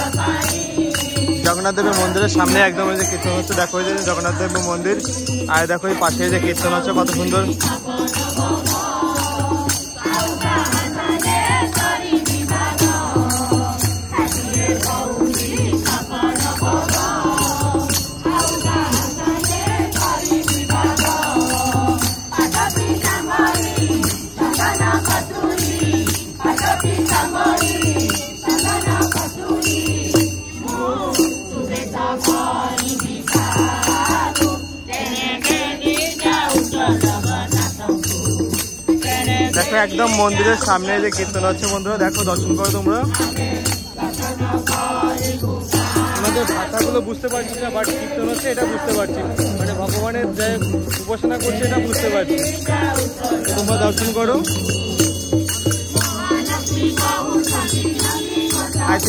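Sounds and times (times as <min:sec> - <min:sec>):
group singing in chorus: 0:00.0 - 0:59.0
hand-played barrel drum: 0:00.0 - 0:59.0.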